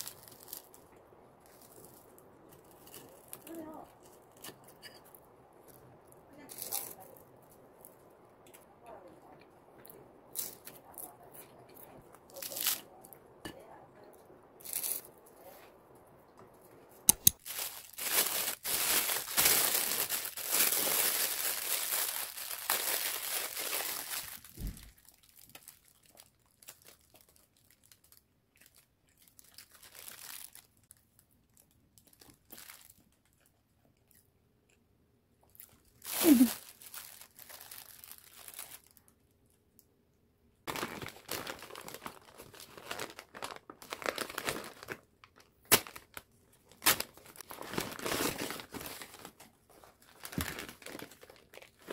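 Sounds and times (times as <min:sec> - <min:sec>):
plastic bag crinkling: 0:00.0 - 0:08.2, 0:11.8 - 0:13.3, 0:17.2 - 0:33.2, 0:36.0 - 0:39.1, 0:40.7 - 0:51.9
sharp clicks: 0:17.1 - 0:17.4.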